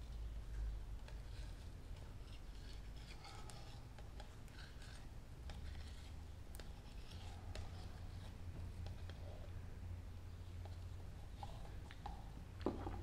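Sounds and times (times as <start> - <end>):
steady low hum: 0.0 - 13.0
stir stick scraping plastic cup: 0.2 - 9.5.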